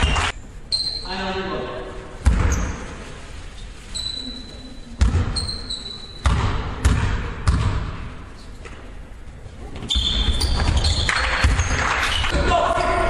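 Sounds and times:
high-pitched squeaks: 3.6s - 6.2s
basketball bouncing on wooden floor: 5.0s - 5.4s, 6.2s - 8.0s.

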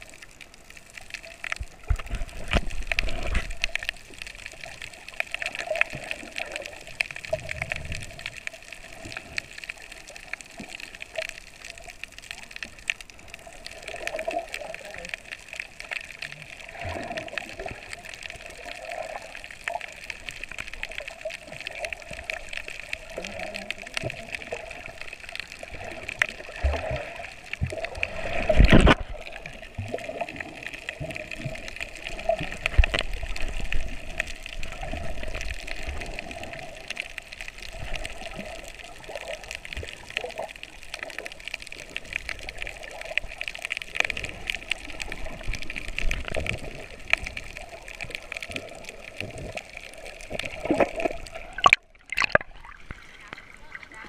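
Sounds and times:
muffled underwater noise: 0.0s - 54.0s
small underwater clicks: 0.0s - 54.0s
person plunging into water: 28.1s - 29.2s, 50.5s - 53.0s.

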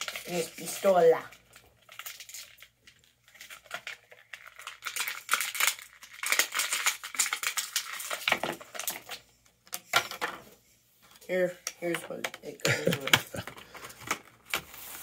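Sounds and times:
plastic packaging crinkling: 0.0s - 9.3s.

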